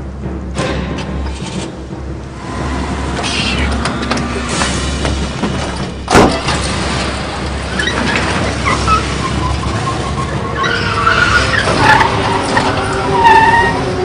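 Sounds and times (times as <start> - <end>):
car engine rumbling: 0.0 - 14.0
car door slamming: 4.2 - 6.7.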